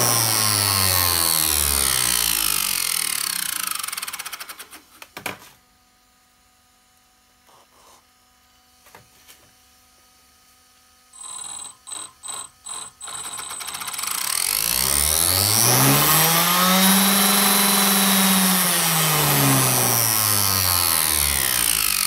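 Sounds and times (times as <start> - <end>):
motor stuttering high-pitched bursts: 0.0 - 4.5, 11.1 - 22.0.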